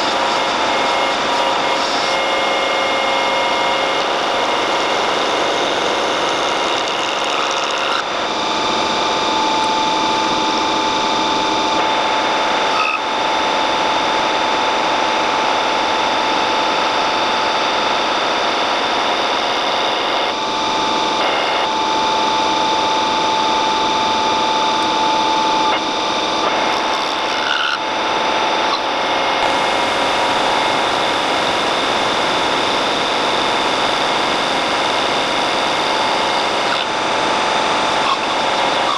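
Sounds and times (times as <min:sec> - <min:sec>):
metal lathe cutting steel: 0:00.0 - 0:38.9
steady high tone: 0:08.0 - 0:27.0.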